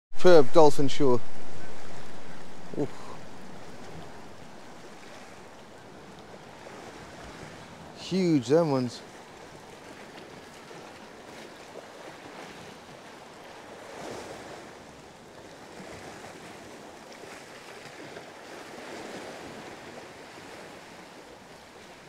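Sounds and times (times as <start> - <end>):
wind on microphone: 0.2 - 8.0
sea waves washing: 0.2 - 22.0.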